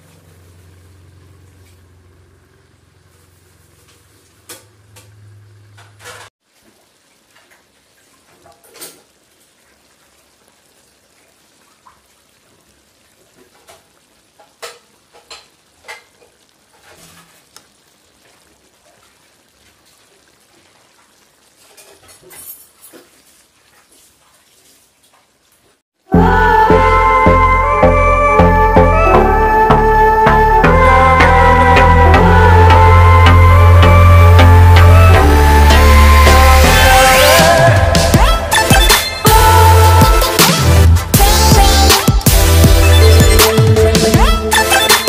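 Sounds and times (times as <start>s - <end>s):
stew sizzling in a pan: 0.0s - 4.8s, 6.4s - 26.0s.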